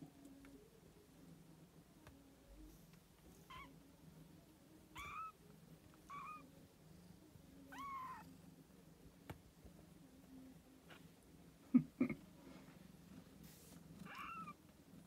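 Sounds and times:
kittens mewing: 5.0 - 5.4, 14.0 - 14.6.

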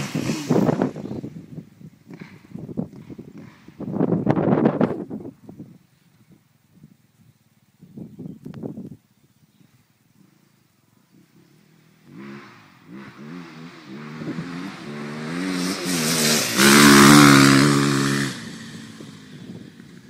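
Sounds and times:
motorcycle engine revving: 0.0 - 4.7, 11.1 - 20.0.

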